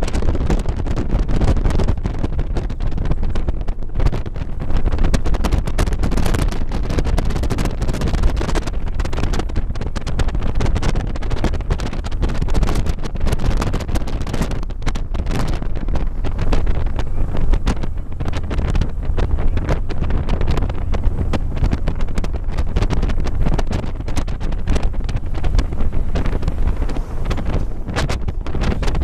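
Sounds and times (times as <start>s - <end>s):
wind buffeting microphone: 0.0s - 29.0s
motorcycle engine droning: 8.3s - 29.0s.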